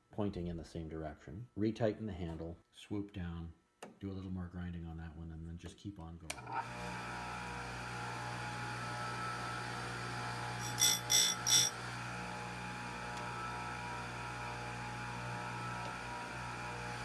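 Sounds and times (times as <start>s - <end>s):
grinder motor humming: 6.6s - 17.0s
grinding wheel on chain: 10.6s - 11.8s.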